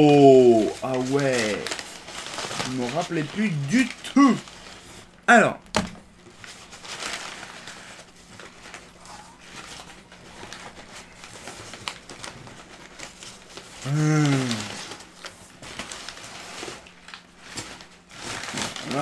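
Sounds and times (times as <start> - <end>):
person humming: 0.0 - 0.8, 3.4 - 4.4, 13.8 - 14.8
packing paper rustling: 0.0 - 19.0.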